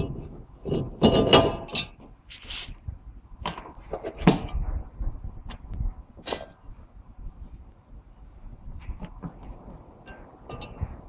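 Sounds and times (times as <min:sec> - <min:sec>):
metal clanks and knocks: 0:00.0 - 0:02.2, 0:10.0 - 0:11.0.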